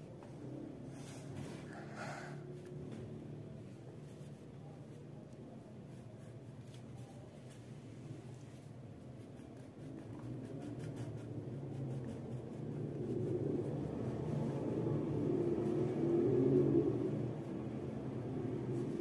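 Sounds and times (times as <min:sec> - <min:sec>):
crayon scratching on paper: 0:08.5 - 0:13.2.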